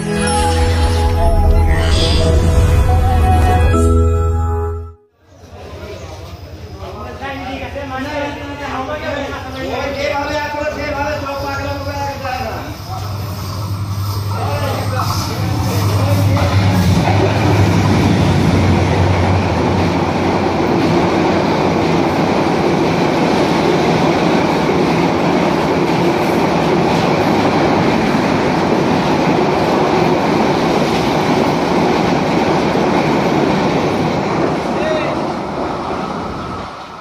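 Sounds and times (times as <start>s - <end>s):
train wheels rushing on rails: 5.7s - 37.0s
diesel locomotive engine hum: 11.3s - 37.0s.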